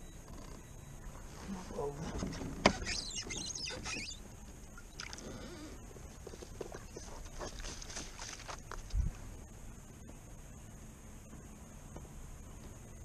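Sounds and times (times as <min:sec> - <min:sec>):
gear rattling and scraping: 0:06.0 - 0:09.0.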